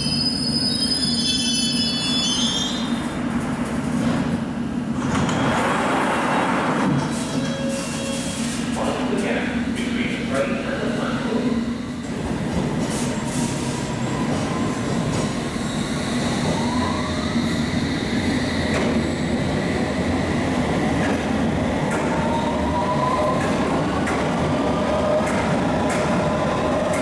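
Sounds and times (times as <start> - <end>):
wheels rumbling on rail: 22.8 - 27.0.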